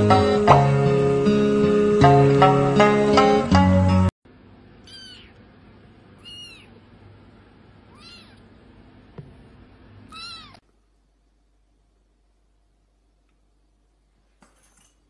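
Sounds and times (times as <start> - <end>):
kitten meowing: 4.8 - 5.4, 6.2 - 6.8, 7.9 - 8.5, 10.1 - 10.6.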